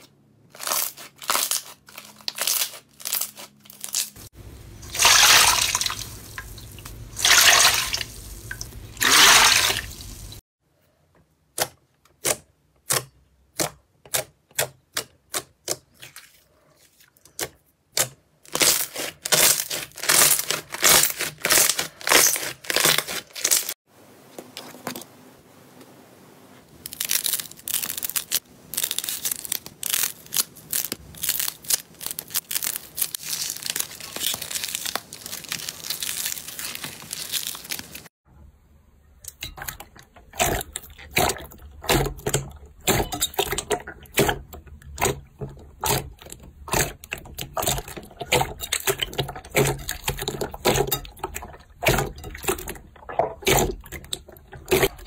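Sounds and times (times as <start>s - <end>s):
slime popping and crackling: 0.6s - 4.3s, 18.5s - 23.7s, 26.8s - 38.1s.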